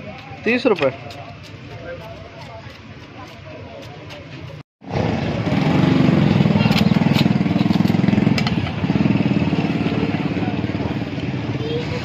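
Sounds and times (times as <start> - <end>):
small engine running loudly: 4.8 - 12.0.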